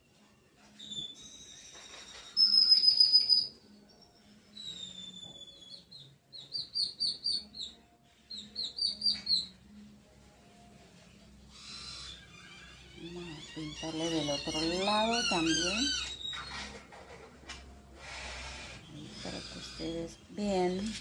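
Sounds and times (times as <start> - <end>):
songbird singing: 2.4 - 9.6.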